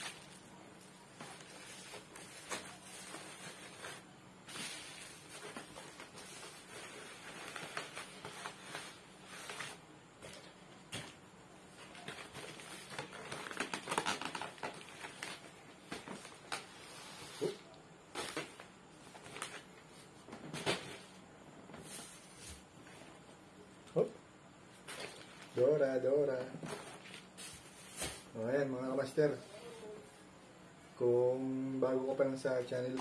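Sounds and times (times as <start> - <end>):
plastic packaging crinkling: 11.8 - 16.7.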